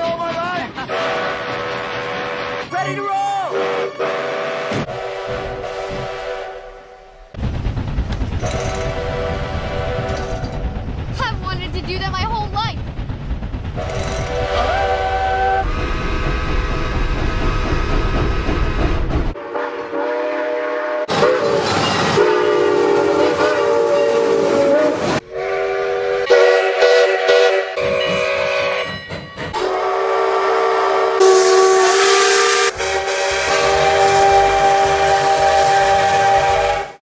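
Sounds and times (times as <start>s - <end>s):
locomotive exhaust chuffing: 7.4s - 19.4s
steam locomotive chime whistle: 19.4s - 37.0s.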